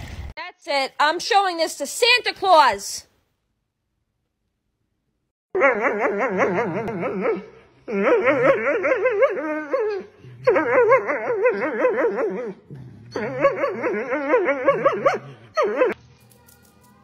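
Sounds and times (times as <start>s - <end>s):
dog crying: 5.5s - 16.0s
dog whining: 5.6s - 16.0s.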